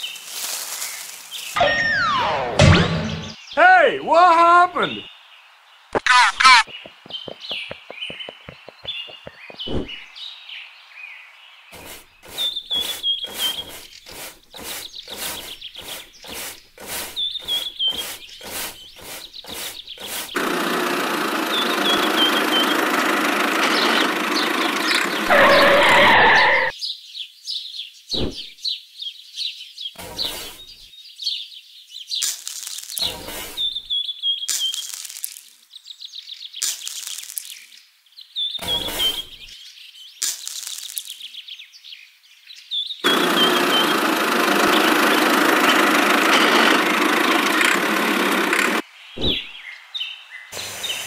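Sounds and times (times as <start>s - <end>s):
broom sweeping leaves on sand: 0.0s - 1.6s, 11.8s - 20.4s, 30.0s - 30.8s, 38.6s - 39.7s
birds chirping: 0.0s - 35.0s, 35.7s - 51.0s.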